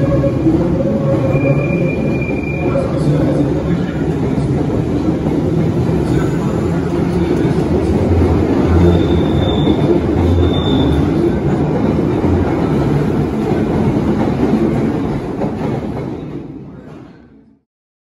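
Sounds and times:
train wheel rumble and clatter: 0.0s - 17.3s
high wheel squeals: 1.1s - 3.1s, 8.6s - 11.2s.

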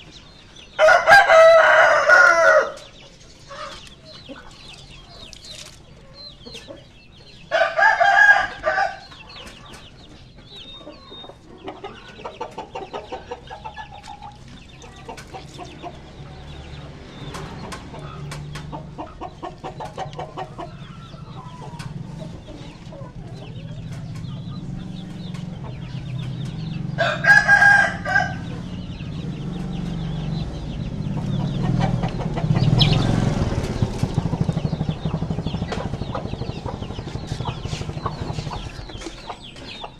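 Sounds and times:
chickens clucking: 0.0s - 39.9s
rooster crowing: 0.8s - 2.8s, 7.5s - 9.0s, 27.0s - 28.6s
low hum: 28.4s - 39.2s.

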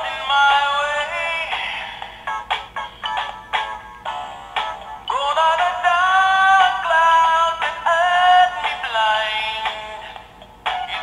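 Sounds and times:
musical backing: 0.0s - 11.0s.

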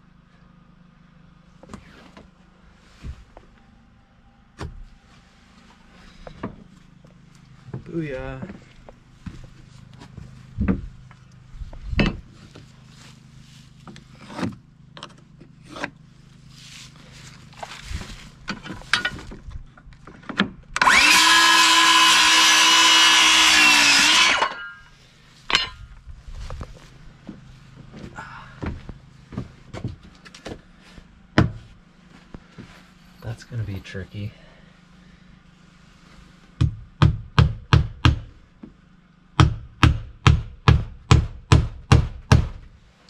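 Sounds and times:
circular saw cutting wood: 20.8s - 24.9s.

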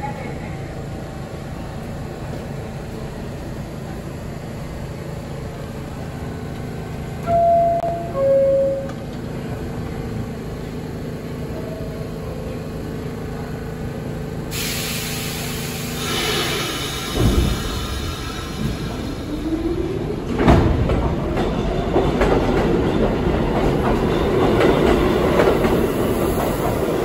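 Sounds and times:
subway train humming: 0.0s - 27.0s
train pulling out: 1.4s - 27.0s
two-note door chime: 7.3s - 9.0s
air brake hiss: 14.5s - 19.1s.

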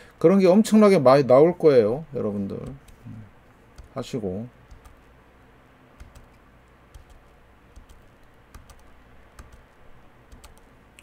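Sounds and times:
faint keyboard tapping: 2.4s - 5.1s, 6.0s - 11.0s.

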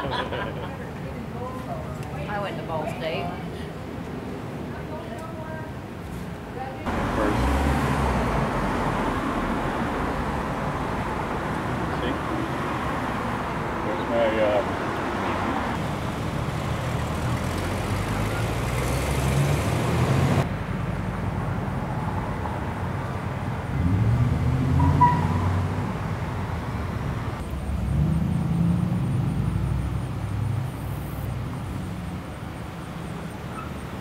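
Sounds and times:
car engines passing: 0.0s - 34.0s
cars pulling away: 6.8s - 34.0s.

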